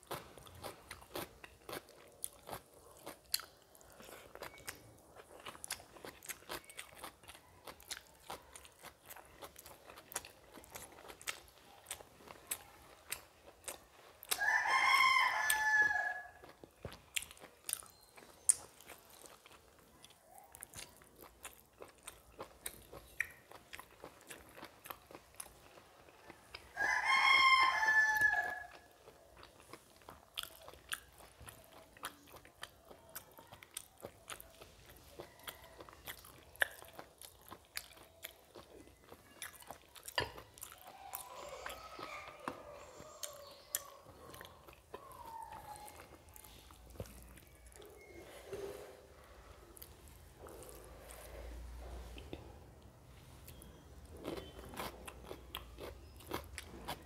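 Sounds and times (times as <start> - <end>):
chewing and lip smacks: 0.0 - 14.6, 15.3 - 26.8, 28.6 - 48.3, 49.2 - 57.0
rooster crowing: 14.4 - 16.5, 26.8 - 28.9.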